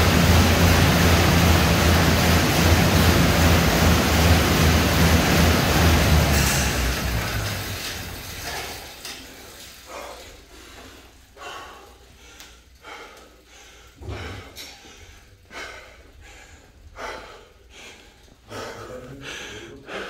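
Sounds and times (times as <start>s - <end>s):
air bike fan whooshing: 0.0s - 19.9s
person panting heavily: 9.9s - 20.0s.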